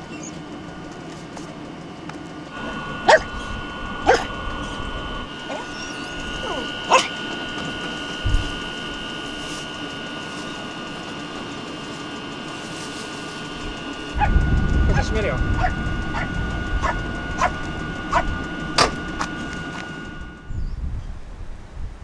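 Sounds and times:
steady high tone hum: 0.0 - 22.0
dog barking: 3.0 - 3.4, 4.0 - 4.4, 5.5 - 7.1, 15.6 - 18.3.

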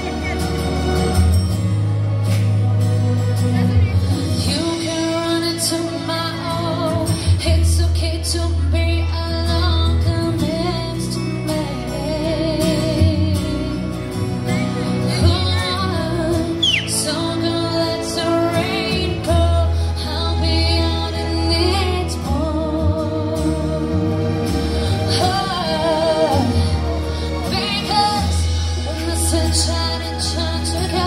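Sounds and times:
instrumental accompaniment over speakers: 0.0 - 31.0
woman singing into microphone: 4.4 - 31.0.

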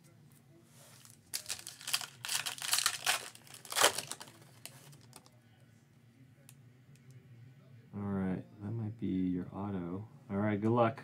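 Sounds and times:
faint handling of cards: 0.0 - 5.4
foil wrapper tearing and crinkling: 1.0 - 5.2.

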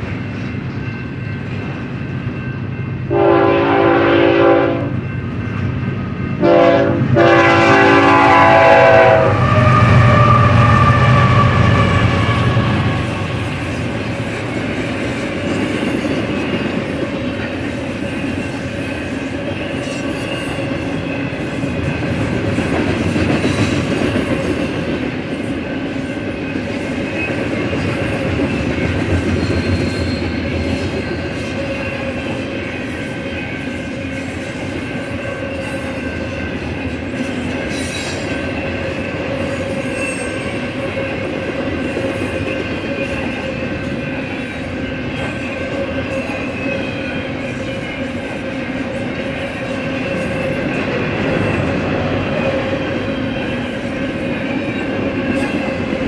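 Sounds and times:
freight train wheels rumbling: 0.0 - 56.0
wheel squeal: 29.3 - 31.2.

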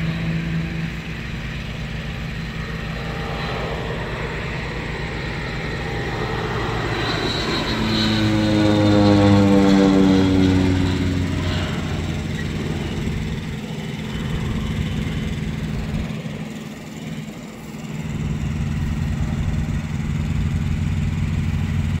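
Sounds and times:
engine running steadily: 0.0 - 22.0.

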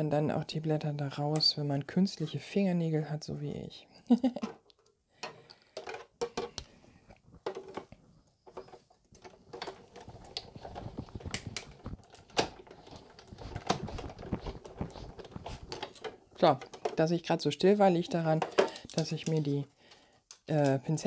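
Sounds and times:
clicks and taps of plastic plates: 4.4 - 6.7, 18.2 - 19.6.

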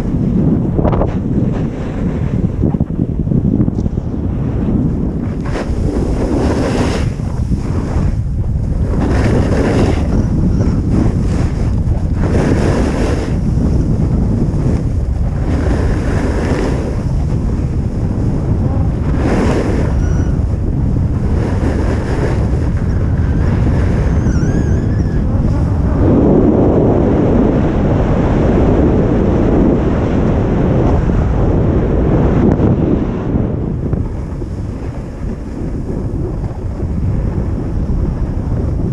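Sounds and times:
wind rushing over microphone: 0.0 - 38.9
skis scraping on packed snow: 5.5 - 7.1.

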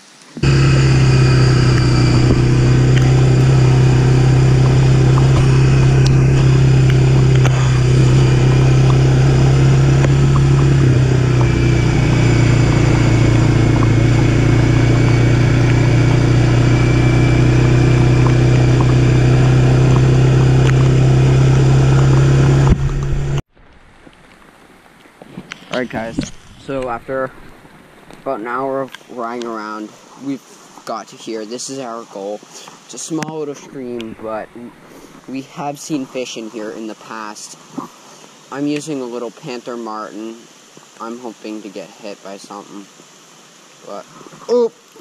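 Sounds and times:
atv engine droning: 0.4 - 23.4.

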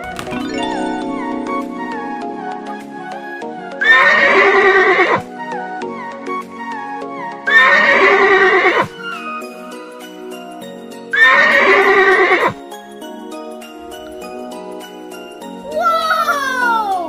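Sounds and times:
plucked background music: 0.0 - 17.0
horse whinnying: 3.8 - 5.3, 7.5 - 9.0, 11.2 - 12.6.

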